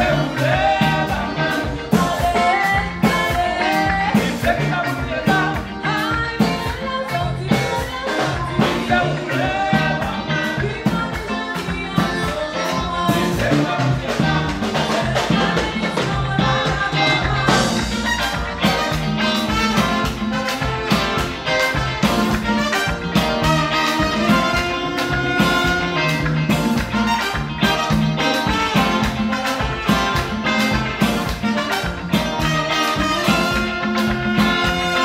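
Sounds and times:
congas: 0.0s - 35.0s
drum kit: 0.0s - 35.0s
electric guitar: 0.0s - 35.0s
trumpet: 0.0s - 35.0s
tenor saxophone: 11.6s - 35.0s.

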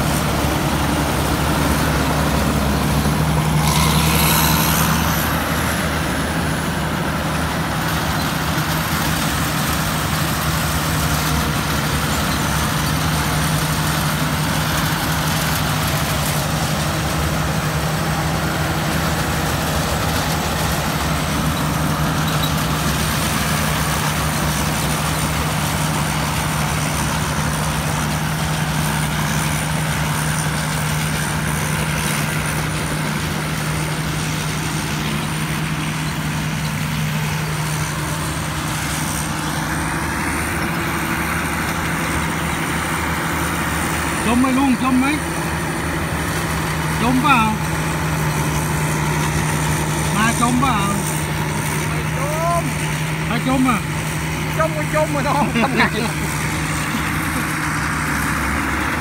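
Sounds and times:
combine harvester diesel engine: 0.0s - 59.0s.

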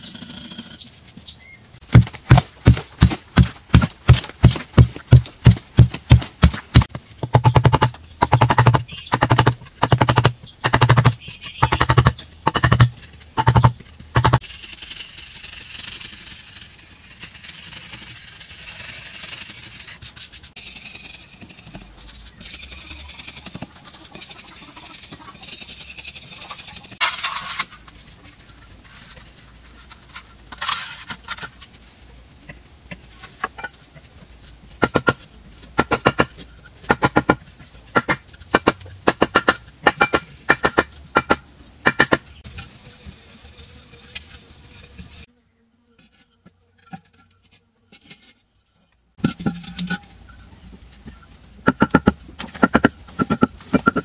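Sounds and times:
blade scraping carving: 2.0s - 27.8s.

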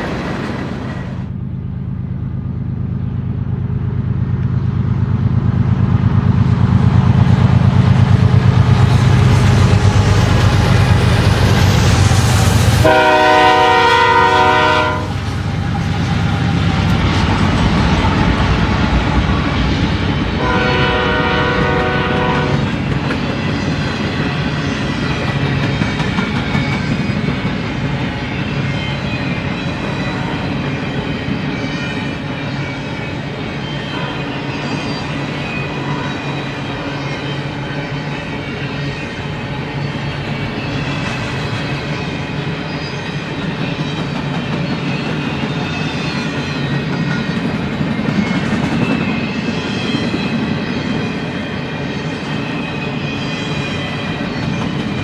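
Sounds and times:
diesel locomotives running: 0.0s - 55.0s
train cars rumbling over rails: 0.0s - 55.0s
locomotive horn: 12.8s - 15.2s, 20.4s - 22.7s.

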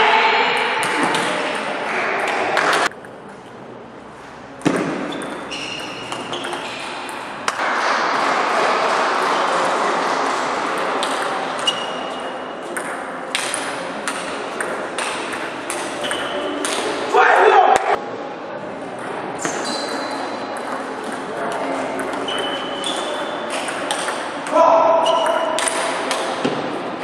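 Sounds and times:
hall background noise: 0.0s - 27.0s
short high squeaks: 5.1s - 7.0s, 19.4s - 20.3s, 22.2s - 23.5s.

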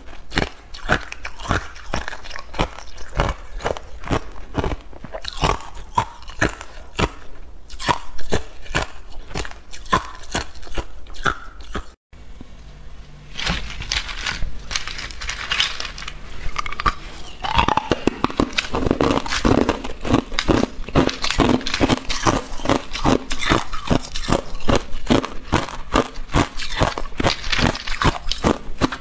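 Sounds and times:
ice cubes crunching: 0.0s - 7.2s, 13.4s - 29.0s.

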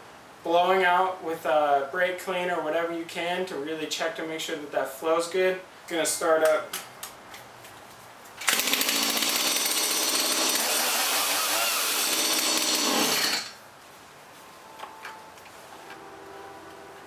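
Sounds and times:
chainsaw engine running: 8.4s - 13.5s.

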